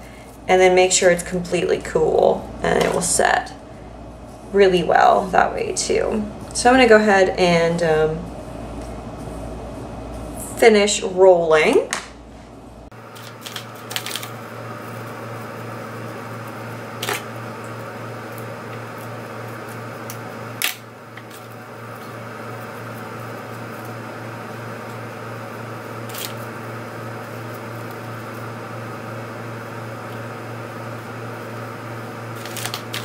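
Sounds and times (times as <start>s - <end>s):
low hum: 0.0s - 33.0s
hair roller clicks and rustles: 13.1s - 14.4s, 16.9s - 24.0s, 26.0s - 26.5s, 32.3s - 33.0s.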